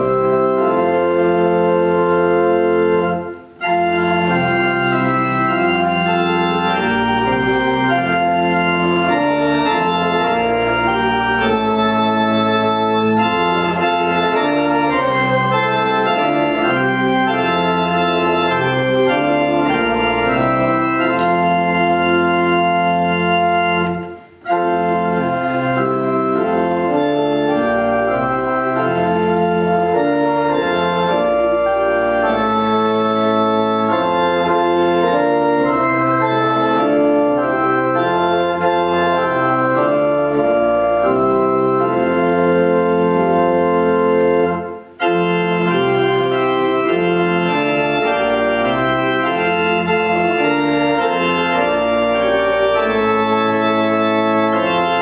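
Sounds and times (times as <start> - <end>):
organ playing a hymn: 0.0 - 55.0.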